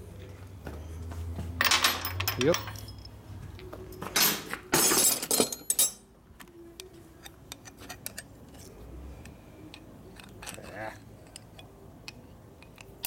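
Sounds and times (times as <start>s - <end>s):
metal tools clattering: 1.6s - 3.2s, 3.9s - 6.0s.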